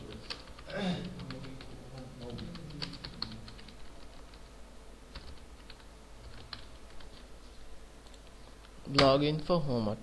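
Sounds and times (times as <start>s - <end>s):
typing on computer keyboard: 0.0s - 4.5s, 5.1s - 7.2s.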